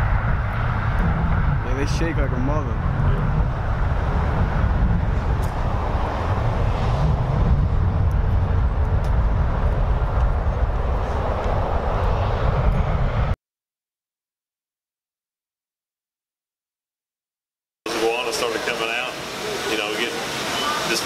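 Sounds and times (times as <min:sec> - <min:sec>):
road traffic rumble: 0:00.0 - 0:13.4.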